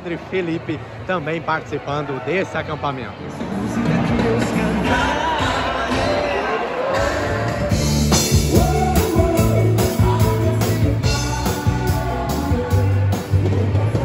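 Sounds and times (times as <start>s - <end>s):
keyboard: 2.8s - 14.0s
drum kit: 7.0s - 14.0s.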